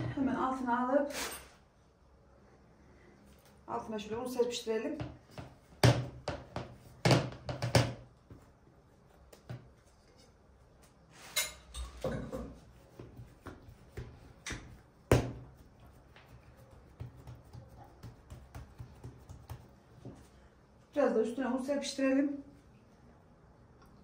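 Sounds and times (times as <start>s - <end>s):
dough knocking on countertop: 5.0s - 8.1s, 12.9s - 20.2s.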